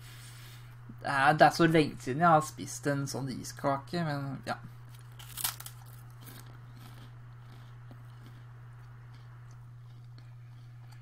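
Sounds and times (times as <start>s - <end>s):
low hum: 0.0s - 11.0s
chewing rice cake: 4.9s - 11.0s.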